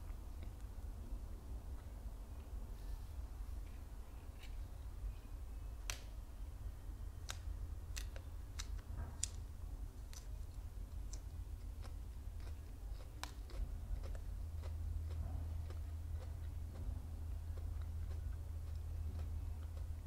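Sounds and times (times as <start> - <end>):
low hum: 0.0 - 20.0
chewing crunchy petals: 10.0 - 20.0.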